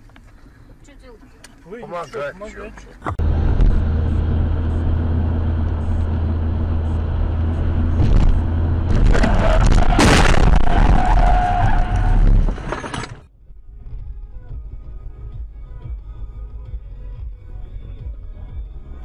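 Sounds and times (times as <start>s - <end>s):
car interior road and engine noise: 0.0s - 19.0s
tyres skidding: 2.1s - 13.2s
loud bang: 8.0s - 11.2s.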